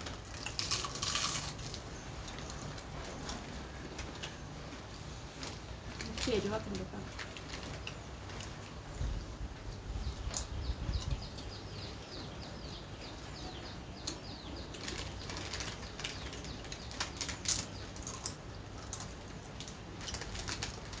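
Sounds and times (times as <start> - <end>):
chips being crunched: 0.0 - 2.8
foil packets crinkling: 0.0 - 4.4, 5.0 - 8.8, 14.6 - 21.0
bird chirping: 7.9 - 21.0.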